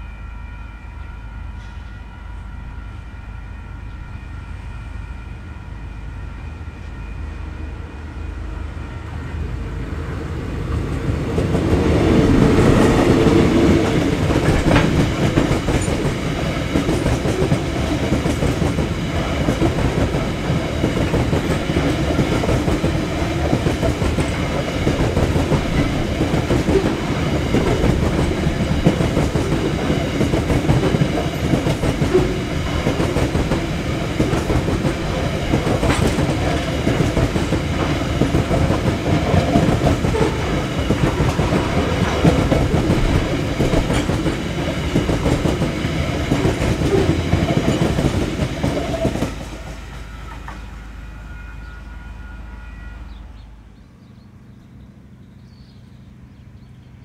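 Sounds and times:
steel wheels running on rails: 10.5 - 50.7.

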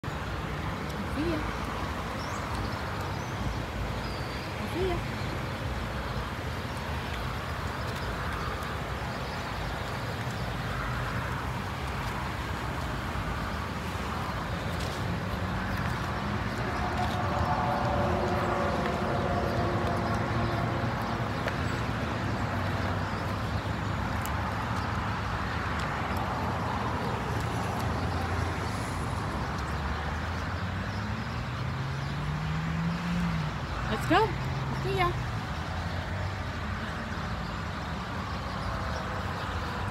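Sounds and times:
road traffic: 0.0 - 39.9
vehicle passing: 10.8 - 23.5.

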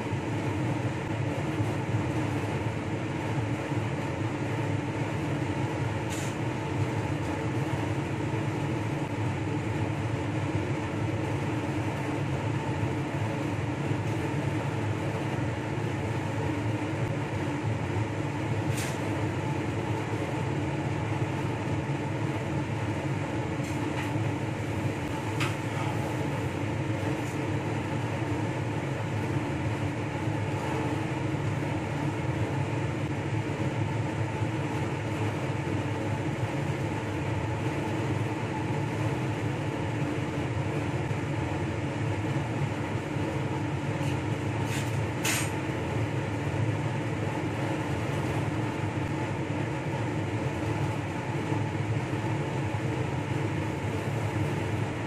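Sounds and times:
blower fan humming: 0.0 - 55.0.

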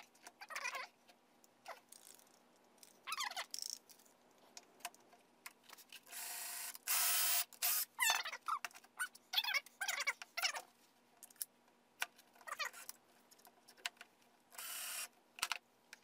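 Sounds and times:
cordless drill boring into wood: 6.1 - 7.9, 14.6 - 15.1.

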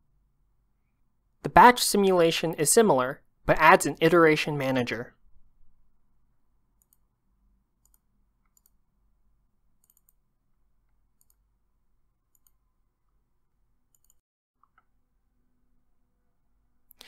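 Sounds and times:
faint computer mouse clicks: 6.8 - 7.0, 7.8 - 8.8, 9.8 - 10.2, 11.2 - 11.4, 12.3 - 12.6, 13.9 - 14.9.

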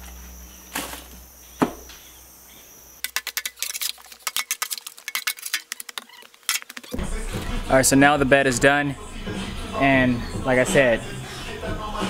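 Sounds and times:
insects chirping: 0.0 - 7.0
sharp clicks and clinks: 3.0 - 7.0.

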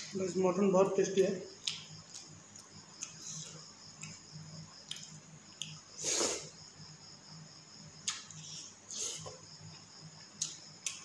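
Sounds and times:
chewing: 1.6 - 4.2.

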